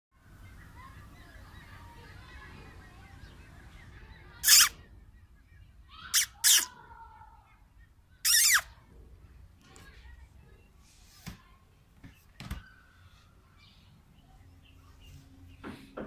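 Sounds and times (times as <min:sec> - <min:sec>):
high-pitched animal calls: 0:04.4 - 0:04.8, 0:06.0 - 0:06.8, 0:08.2 - 0:08.7.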